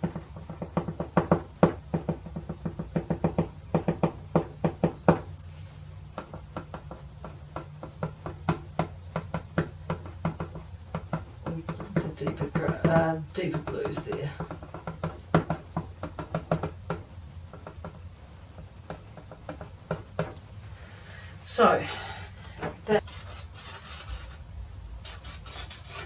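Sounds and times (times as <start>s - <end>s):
pastel stick tapping on paper: 0.0s - 5.3s, 6.1s - 20.4s
steady low hum: 0.0s - 26.0s.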